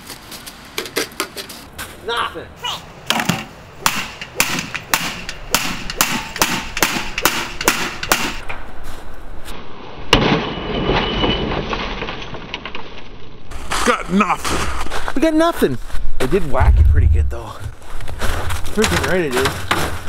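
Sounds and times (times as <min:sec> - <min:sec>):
wind rushing: 0:16.4 - 0:18.5.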